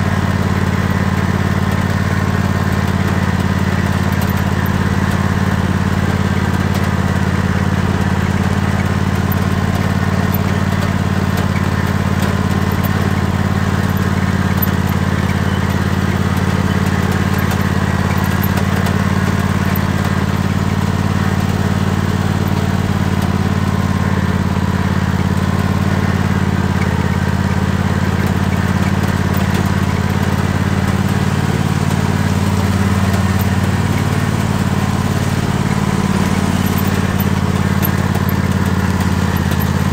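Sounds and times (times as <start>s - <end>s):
tractor engine running: 0.0s - 39.9s.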